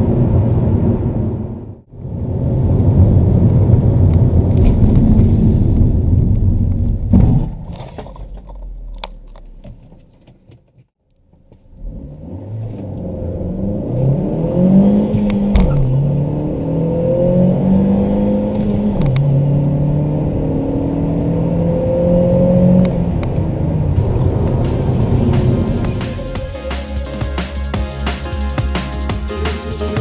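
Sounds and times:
car engine accelerating: 11.6 - 30.0.

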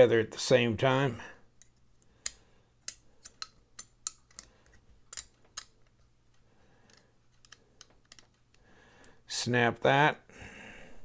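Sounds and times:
small metal clicks and taps: 1.6 - 8.6.

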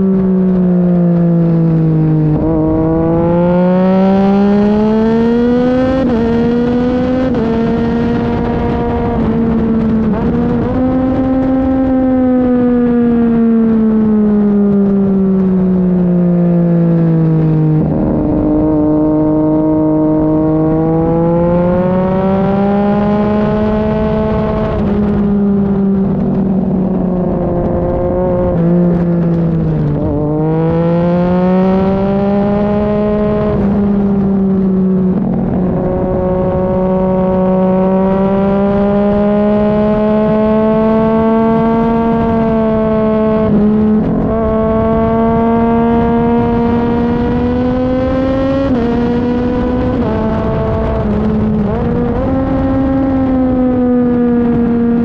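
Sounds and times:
motorcycle engine revving: 0.0 - 55.0
wind rushing over microphone: 0.0 - 55.0.

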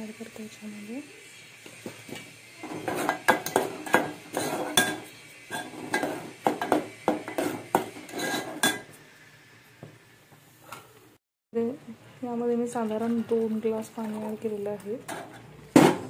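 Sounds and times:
metal spoon scraping metal pot: 2.6 - 8.9.

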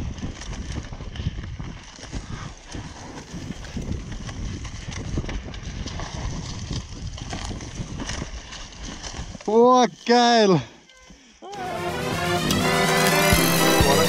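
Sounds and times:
bike tyres rolling over dirt: 0.0 - 10.1.

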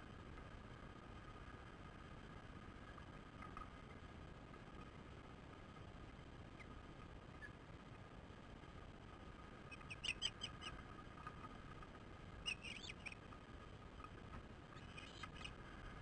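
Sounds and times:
faint steady hum: 0.0 - 16.0
ospreys whistled chirps: 12.4 - 13.2.

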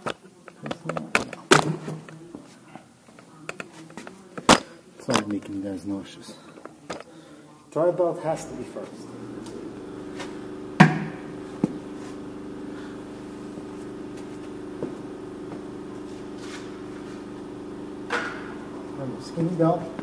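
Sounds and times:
low machine hum: 7.8 - 20.0.

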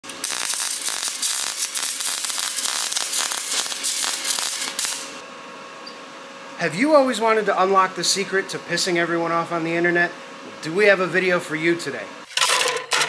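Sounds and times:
rapid crackling and popping: 0.1 - 5.0.

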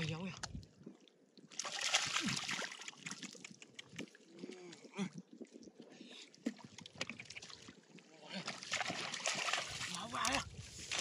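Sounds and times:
hands splashing in muddy water: 1.5 - 4.7, 8.3 - 11.0.

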